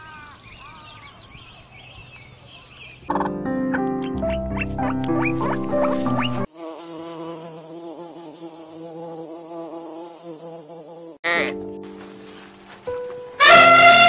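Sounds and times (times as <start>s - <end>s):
honeybee buzzing: 4.3s - 11.6s.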